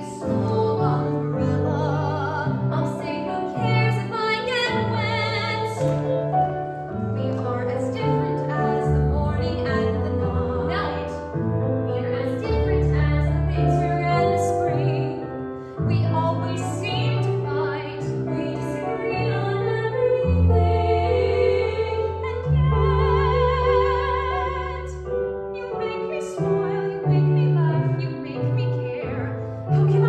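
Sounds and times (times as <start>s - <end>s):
woman singing with vibrato: 0.0s - 5.9s, 15.9s - 25.0s
instrumental accompaniment: 0.0s - 30.0s.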